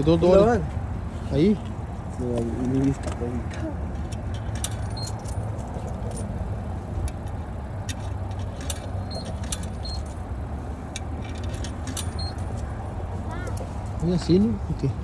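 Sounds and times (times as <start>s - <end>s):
light clicks and rattles: 1.5s - 6.4s, 7.0s - 10.3s, 10.9s - 14.5s.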